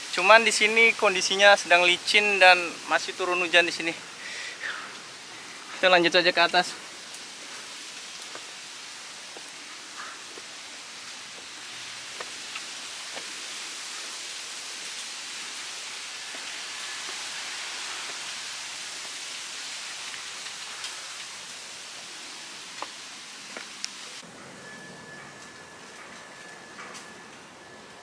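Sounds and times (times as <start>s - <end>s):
steady rain hiss: 0.0s - 28.0s
raindrops ticking close by: 0.1s - 24.2s.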